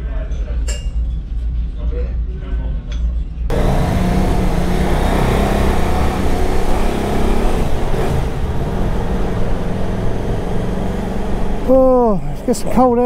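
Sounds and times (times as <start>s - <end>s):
motorcycle engine running: 3.5s - 12.5s.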